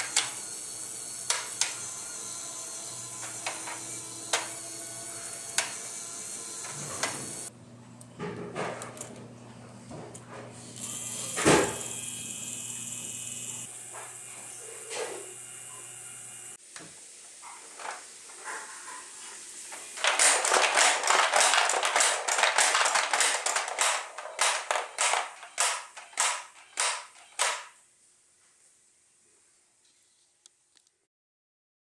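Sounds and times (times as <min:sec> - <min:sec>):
small motors humming: 0:00.0 - 0:07.5, 0:10.6 - 0:16.6
rapid plastic clattering: 0:20.0 - 0:27.6.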